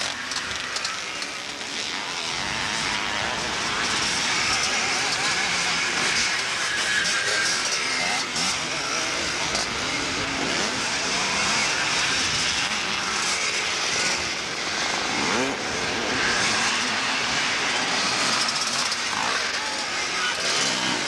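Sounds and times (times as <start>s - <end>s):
motocross motorcycles revving: 0.0s - 21.0s.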